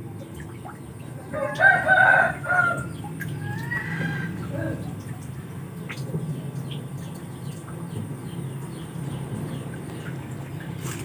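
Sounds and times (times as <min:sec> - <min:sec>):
rooster crowing: 0:01.3 - 0:04.8.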